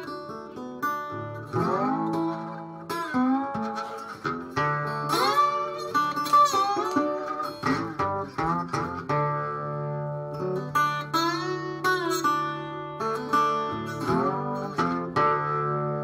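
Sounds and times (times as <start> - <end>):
slide guitar blues: 0.0 - 16.0.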